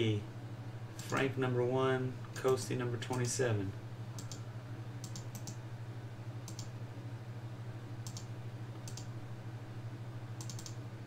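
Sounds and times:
low electrical hum: 0.0 - 11.0
computer mouse clicks: 4.2 - 4.4, 5.0 - 5.6, 6.4 - 6.7, 8.0 - 9.1, 10.4 - 10.8.

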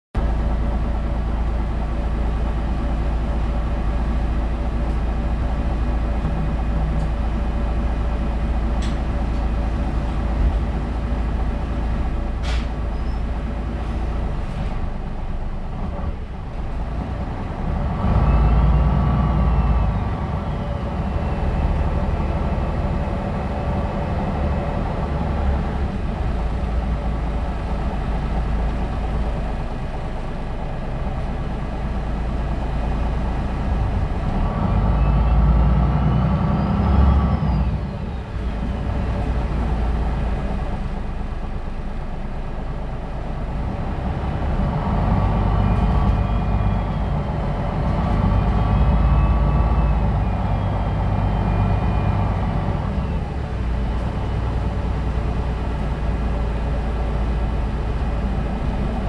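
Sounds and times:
bus diesel engine rumbling: 0.2 - 59.0.

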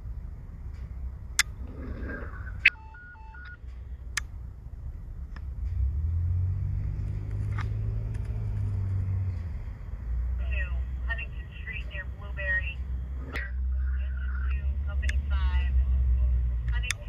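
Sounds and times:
low rumble: 0.0 - 17.0
steady low hum: 0.0 - 17.0
electronic beeps: 2.4 - 3.6.

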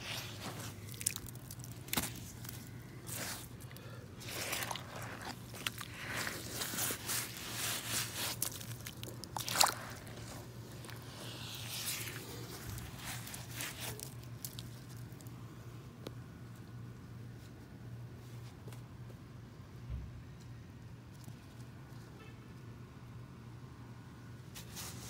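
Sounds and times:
boots squelching in wet mud: 0.0 - 15.2.

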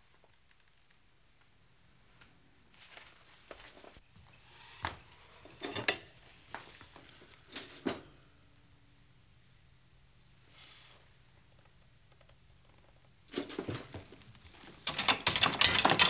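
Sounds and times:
soft rustling: 0.0 - 4.0.

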